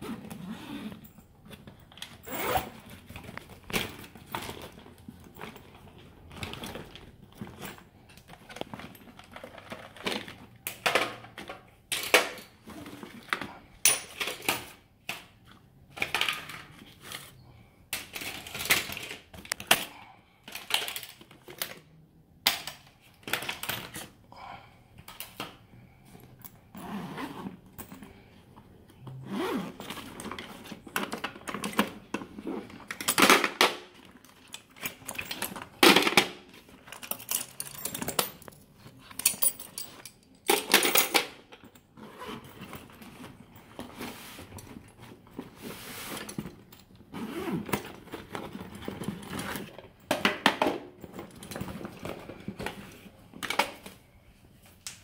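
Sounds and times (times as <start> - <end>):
vinyl tool bag rustling: 0.0 - 10.7, 26.1 - 54.2.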